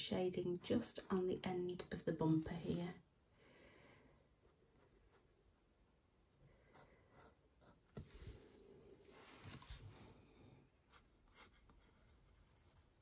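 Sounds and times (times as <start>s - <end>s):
pen scratching on paper: 6.7s - 8.0s, 10.9s - 13.0s.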